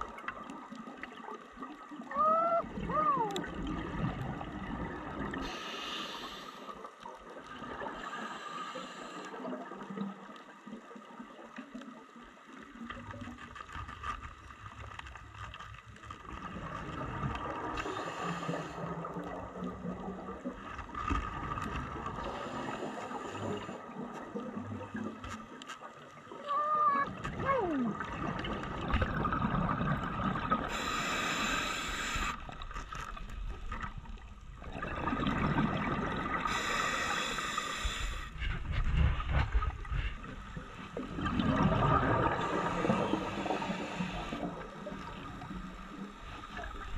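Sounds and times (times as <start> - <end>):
exhaled bubbles hissing: 1.8 - 10.8, 16.3 - 25.2, 27.4 - 46.9
diver breathing through regulator: 5.4 - 6.8, 7.9 - 9.4, 17.8 - 19.0, 22.2 - 23.9, 30.6 - 32.6, 36.4 - 38.8, 42.2 - 44.8
muffled underwater background: 24.9 - 28.4.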